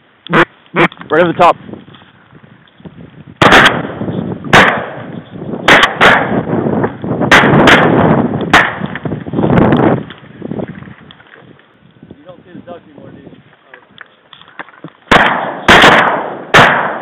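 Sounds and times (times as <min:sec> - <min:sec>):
shotgun shots with rolling echo: 0:03.4 - 0:06.6, 0:07.2 - 0:09.0, 0:15.1 - 0:17.0.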